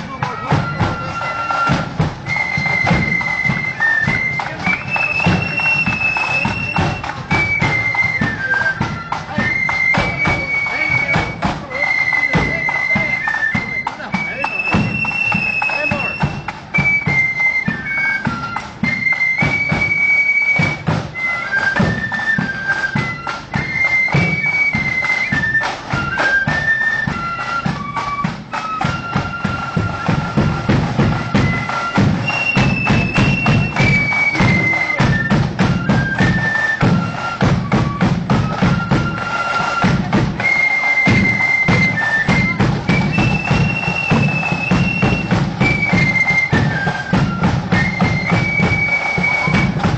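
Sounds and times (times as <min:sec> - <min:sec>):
flutes playing melody: 0:00.0 - 0:49.9
side drum rolls: 0:00.0 - 0:49.9.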